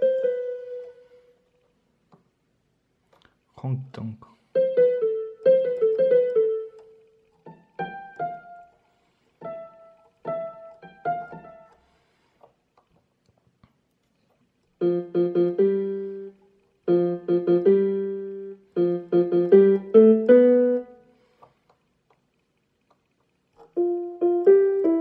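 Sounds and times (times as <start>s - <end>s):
digital keyboard piano notes: 0.0s - 1.4s, 4.5s - 8.8s, 9.4s - 11.8s, 14.8s - 21.2s, 23.6s - 25.0s
faint clicks: 21.3s - 23.8s.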